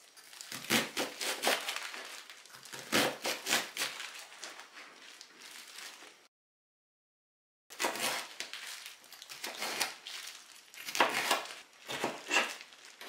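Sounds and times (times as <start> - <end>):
knife dicing onion on board: 7.8 - 8.3, 10.8 - 12.6.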